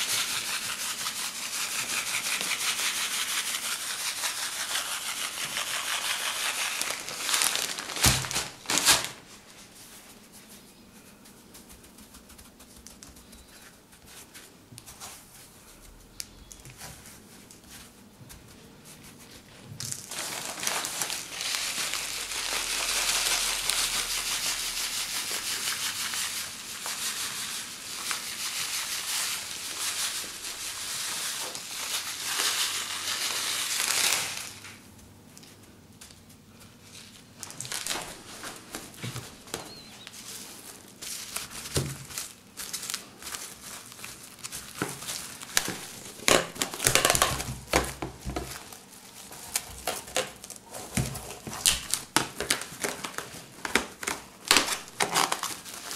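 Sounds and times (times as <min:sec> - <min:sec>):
coarse salt pouring from a bag: 0:00.0 - 0:09.1, 0:20.0 - 0:34.6
plastic cling film crinkling: 0:00.0 - 0:55.9
hand patting salt crunching: 0:09.8 - 0:20.1.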